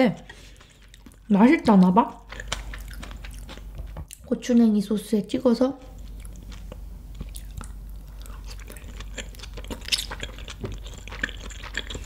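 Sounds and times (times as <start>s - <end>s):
close-miked chewing: 0.1s - 4.3s, 5.8s - 12.0s.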